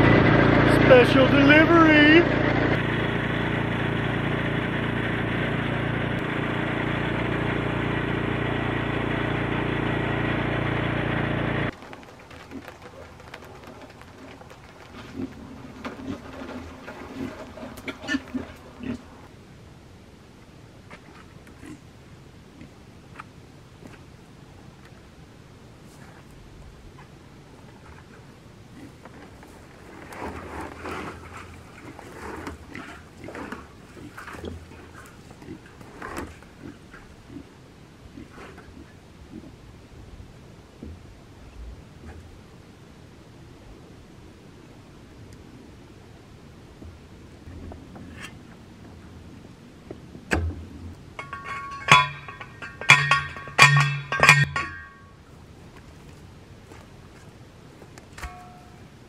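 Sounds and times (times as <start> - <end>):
pigs grunting: 12.0 - 19.3, 30.9 - 39.6
post driver clanking on steel post: 51.2 - 55.1.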